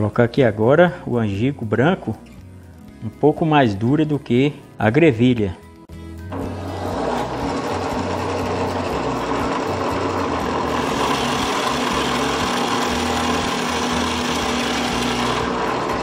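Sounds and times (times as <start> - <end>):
drill press motor running: 6.3 - 16.0
drill bit boring into wood: 6.4 - 16.0.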